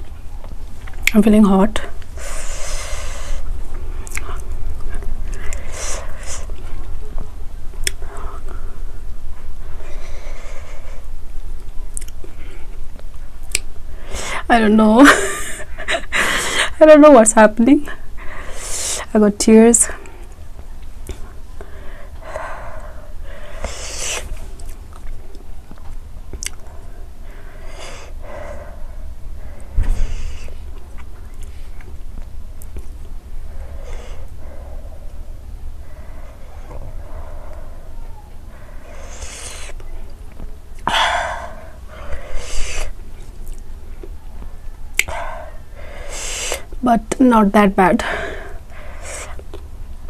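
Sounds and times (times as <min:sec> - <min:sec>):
person breathing hard: 0:02.2 - 0:03.6, 0:09.6 - 0:11.2, 0:18.0 - 0:19.1, 0:21.1 - 0:24.4, 0:26.6 - 0:30.7, 0:33.4 - 0:39.8, 0:40.8 - 0:43.1, 0:45.0 - 0:46.8, 0:48.0 - 0:49.5.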